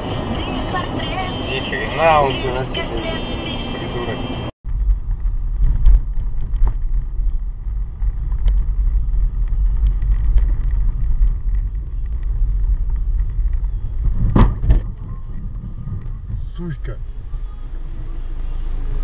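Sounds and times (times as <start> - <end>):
car road and engine rumble: 0.0 - 19.0.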